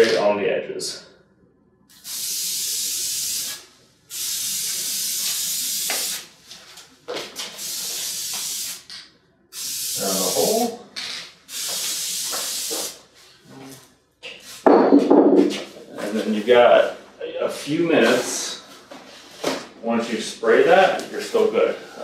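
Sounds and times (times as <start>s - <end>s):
aerosol can spray hissing: 2.0s - 6.4s, 7.6s - 8.9s, 9.5s - 13.1s.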